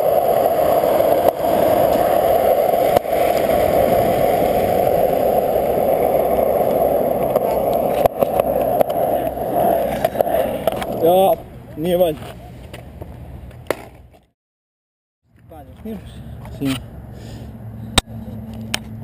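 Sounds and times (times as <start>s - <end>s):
skateboard wheels on asphalt: 0.0s - 14.3s.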